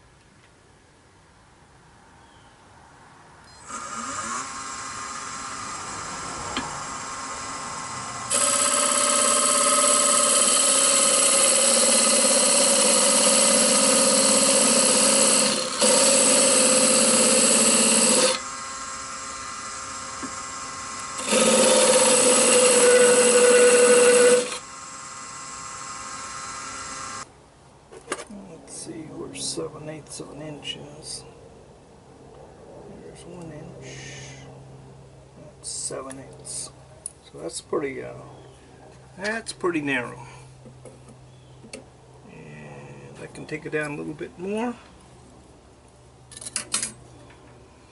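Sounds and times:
turning tool cutting wood: 3.6 - 27.2
wood lathe running: 3.6 - 27.2.

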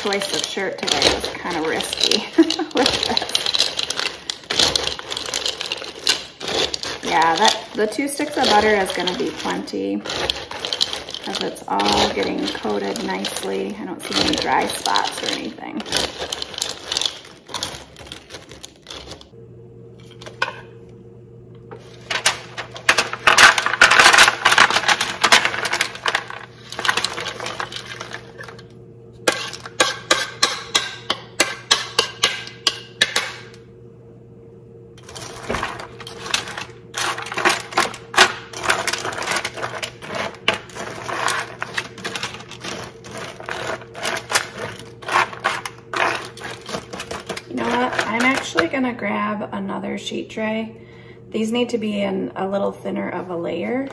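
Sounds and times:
pretzel sticks clattering onto pan: 0.0 - 19.0
steady low hum: 0.0 - 53.9.

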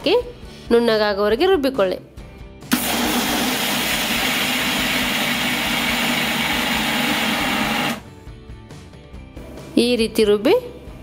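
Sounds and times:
electric mixer grinder whirring: 2.7 - 8.0.

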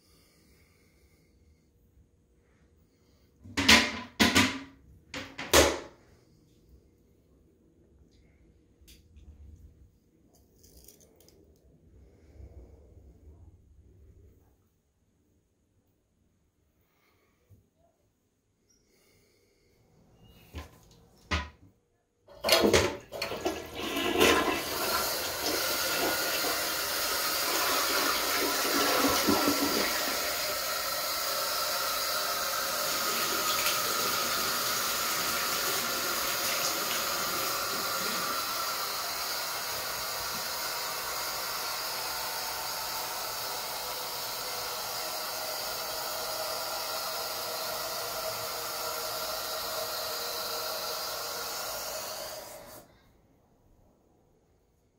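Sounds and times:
toilet flushing: 22.3 - 52.9.

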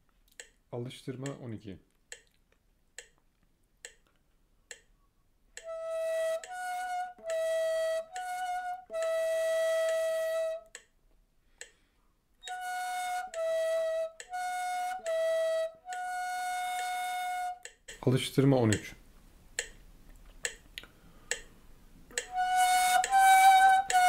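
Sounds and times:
metronome clicking: 0.3 - 0.6, 2.1 - 2.4, 3.0 - 3.2, 3.8 - 11.0, 12.4 - 18.9, 19.6 - 19.8, 20.4 - 21.5, 22.1 - 24.0
reed flute playing: 5.6 - 10.8, 12.4 - 17.8, 22.1 - 24.0.

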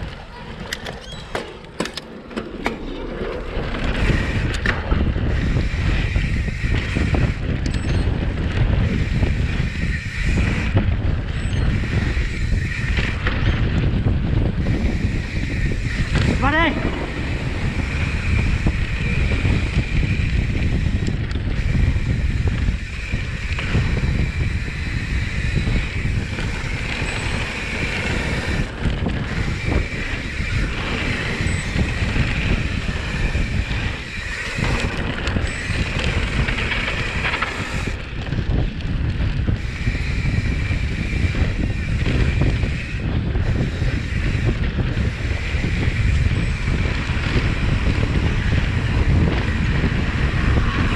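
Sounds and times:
bike tyres rolling over dirt: 0.0 - 50.9
wind rushing over microphone: 0.0 - 50.9
high buzzing: 3.8 - 38.7, 39.4 - 50.9.

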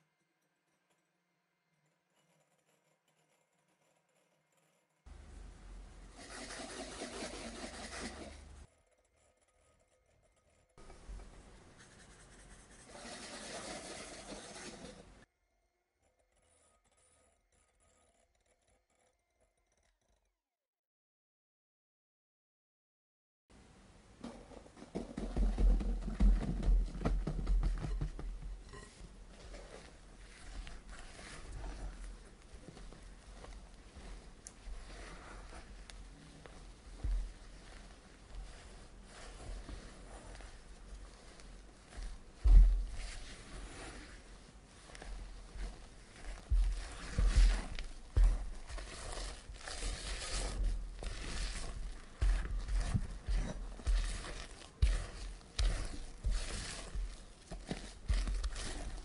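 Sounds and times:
spatula scraping and rustling: 5.0 - 15.3, 24.2 - 59.0
low thumps and knocks: 24.2 - 28.7.

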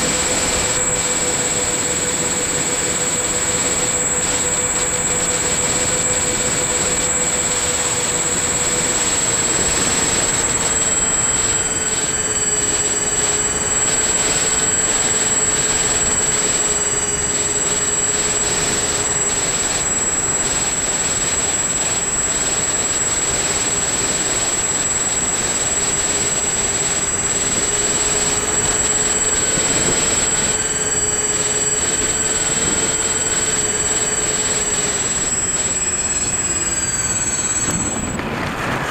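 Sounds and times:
electric motor whine: 0.0 - 38.9
wind on microphone: 36.8 - 38.9.

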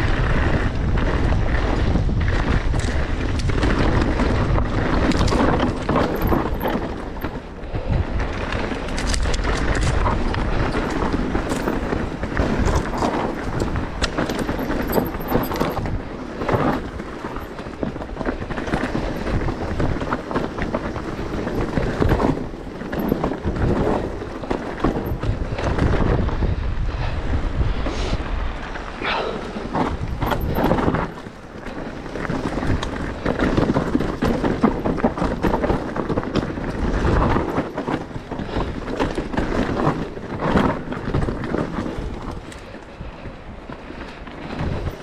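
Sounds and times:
bike tyres rolling over rough ground: 0.0 - 45.0
wind buffeting microphone: 0.0 - 45.0.

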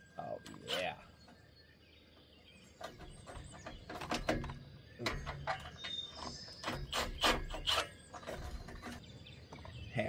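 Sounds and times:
metallic clicks and knocks: 2.8 - 9.0.

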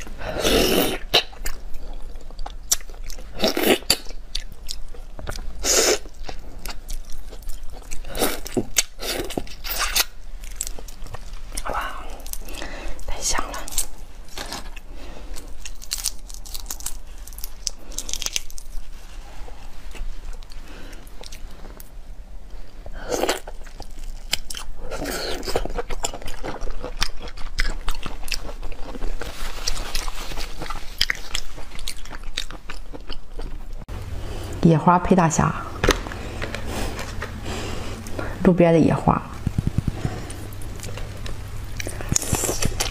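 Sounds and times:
chewing: 0.0 - 21.9, 23.1 - 34.5, 39.4 - 42.9
shells cracking and crunching: 15.6 - 18.7.

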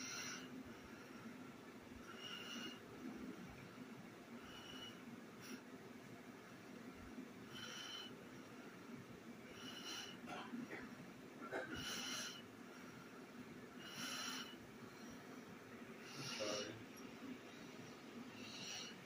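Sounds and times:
person breathing slowly: 0.0 - 3.6, 4.4 - 5.7, 7.5 - 8.8, 9.5 - 10.8, 11.8 - 19.0.

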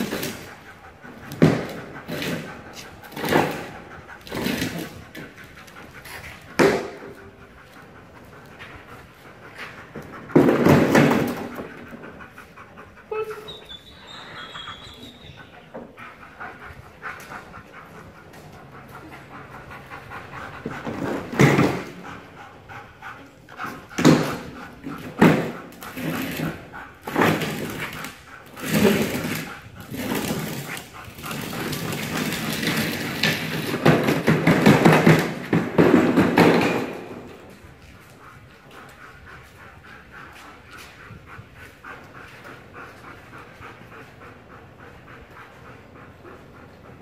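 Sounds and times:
dog panting and whimpering: 0.0 - 47.0.

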